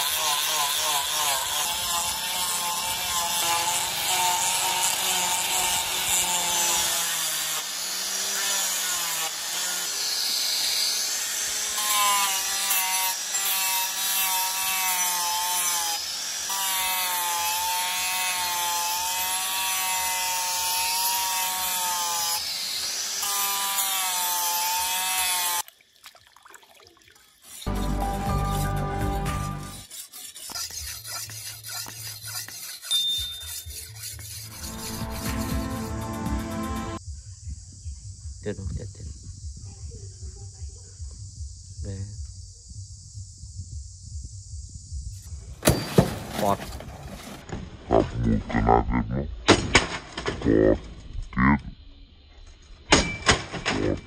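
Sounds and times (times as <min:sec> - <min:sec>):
angle grinder sanding wood: 0:00.0 - 0:25.6, 0:27.4 - 0:37.0.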